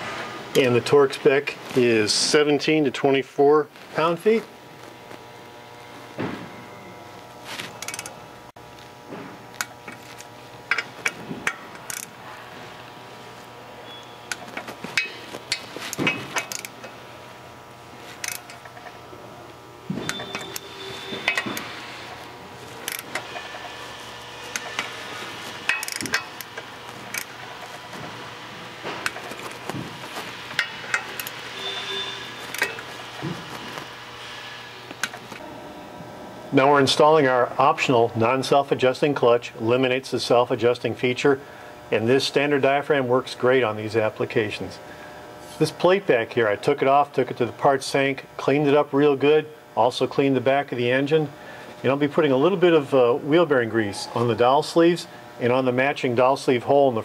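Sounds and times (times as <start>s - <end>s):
torque wrench ratcheting and clicking: 7.8s - 8.1s, 10.7s - 12.1s, 15.0s - 16.8s, 18.2s - 18.7s, 22.8s - 23.7s, 25.7s - 27.3s, 32.5s - 32.8s
metallic rings: 13.8s - 17.0s, 20.0s - 22.1s, 30.6s - 33.2s.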